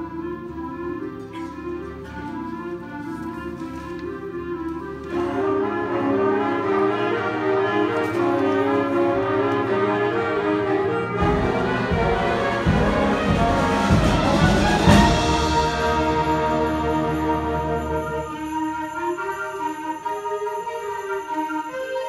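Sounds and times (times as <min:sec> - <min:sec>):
concert band playing: 0:05.2 - 0:18.5
heavy low drum strikes: 0:11.2 - 0:16.7.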